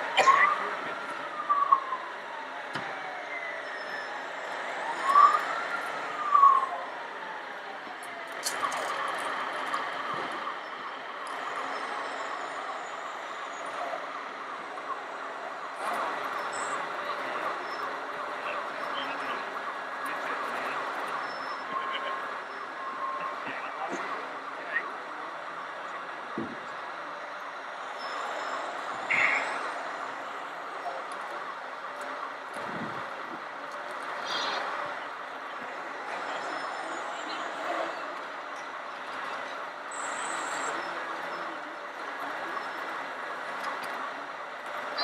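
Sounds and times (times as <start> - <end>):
siren-like wail: 0.0 - 23.8
hall background noise: 0.0 - 45.0.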